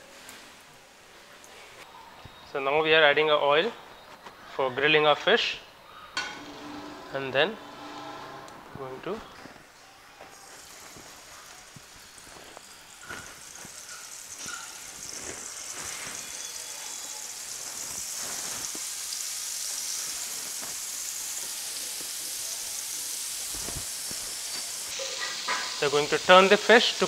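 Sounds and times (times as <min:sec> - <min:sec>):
fish frying in hot oil: 0:10.4 - 0:27.0.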